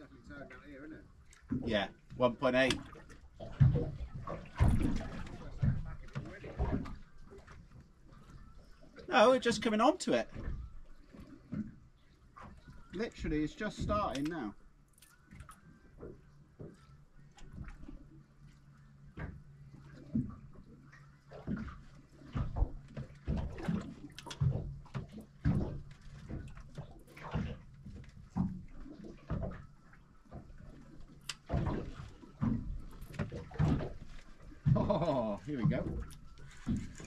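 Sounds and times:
low steady hum: 0.0 - 37.0
water lapping against boat hull: 0.0 - 37.0.

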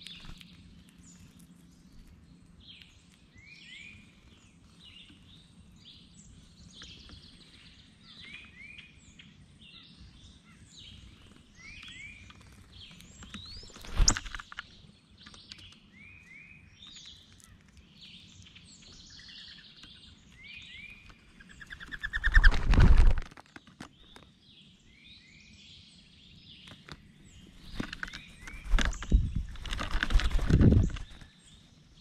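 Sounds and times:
wings fluttering and flapping: 0.0 - 2.2, 11.1 - 14.7, 21.0 - 24.2, 26.8 - 31.4
songbirds chirping: 0.0 - 32.0.

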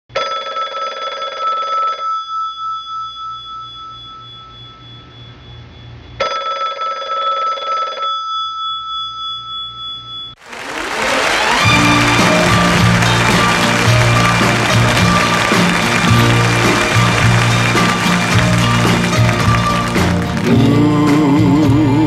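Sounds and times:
bell-like ring: 2.2 - 5.6
applause: 10.4 - 21.5
music: 10.5 - 22.0.

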